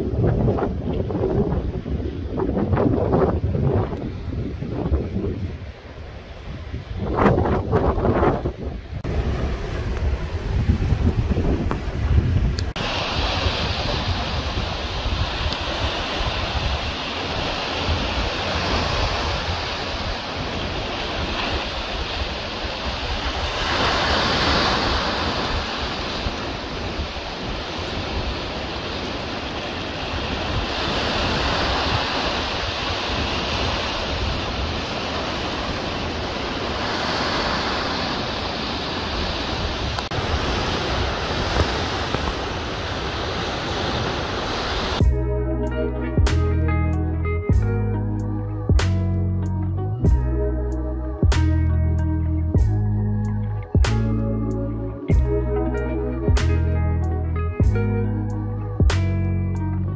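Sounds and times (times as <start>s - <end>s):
surf breaking on rocks: 9.0s - 45.0s.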